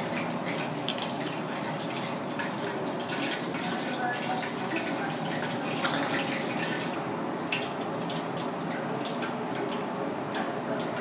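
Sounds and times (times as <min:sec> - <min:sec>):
broth bubbling in a pan: 0:00.0 - 0:11.0.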